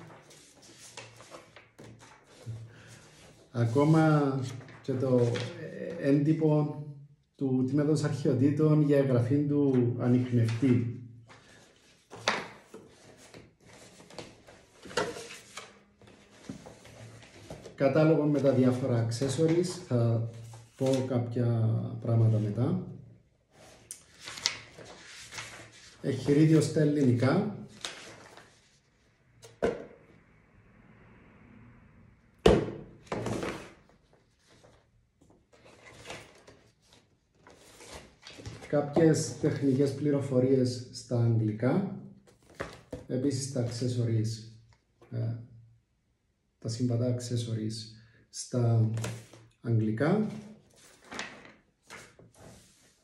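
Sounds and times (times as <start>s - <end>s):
papers rustling: 0.0s - 6.0s, 9.7s - 21.1s, 23.5s - 28.8s, 33.1s - 40.0s, 42.3s - 43.9s, 48.8s - 49.5s, 50.2s - 53.0s
paper crackle: 24.1s - 25.9s.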